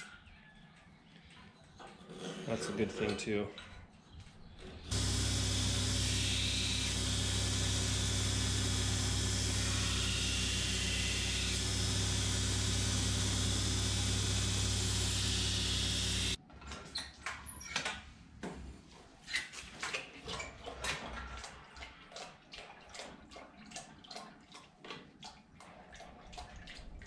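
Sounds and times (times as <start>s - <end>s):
belt grinder grinding steel: 4.9s - 16.4s.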